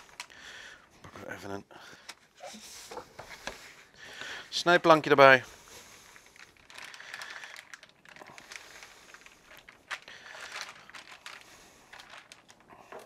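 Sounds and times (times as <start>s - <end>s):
plastic bag crinkling: 0.0s - 0.9s, 4.5s - 13.0s.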